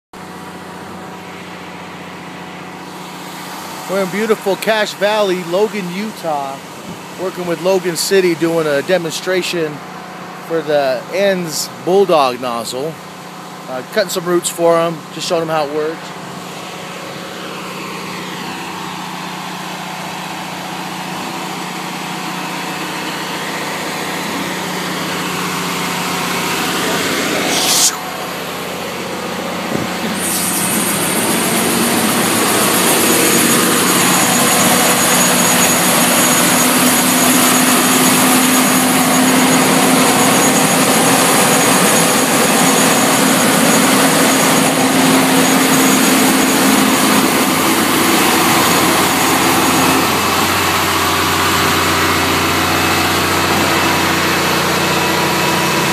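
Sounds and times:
truck engine running: 0.2s - 55.9s
high-pressure water pump hiss: 2.8s - 7.2s, 16.3s - 55.9s.

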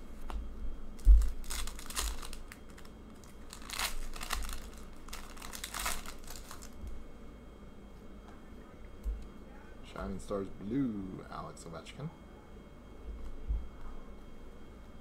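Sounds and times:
foil wrapper crinkling: 1.0s - 7.0s.

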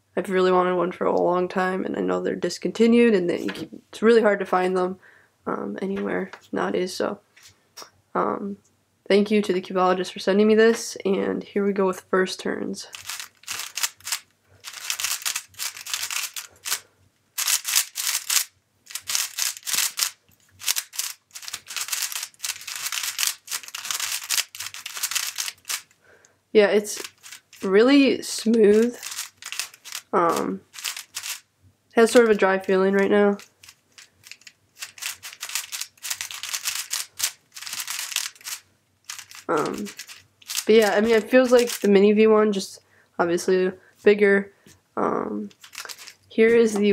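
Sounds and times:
puzzle cube clicking as turned: 12.9s - 16.8s, 17.4s - 26.0s, 27.0s - 27.7s, 28.5s - 30.1s, 30.7s - 31.4s, 33.4s - 41.9s, 45.5s - 46.2s.

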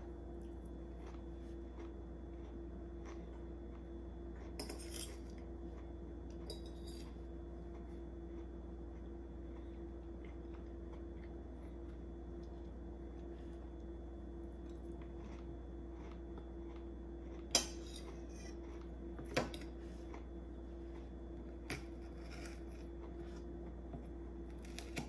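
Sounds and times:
steady low hum: 0.0s - 25.0s
knife and fork scraping on plate: 4.5s - 5.3s, 17.3s - 18.9s, 21.7s - 23.0s.

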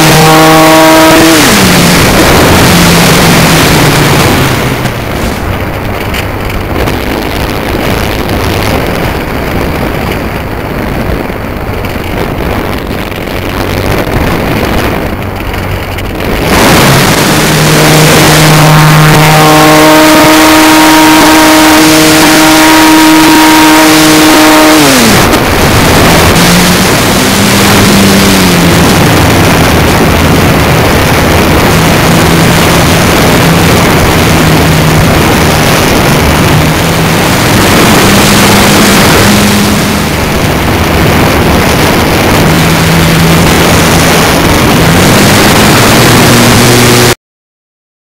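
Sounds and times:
model airplane motor drone: 0.0s - 6.6s, 16.9s - 40.7s
wind rush on microphone: 0.0s - 47.2s.

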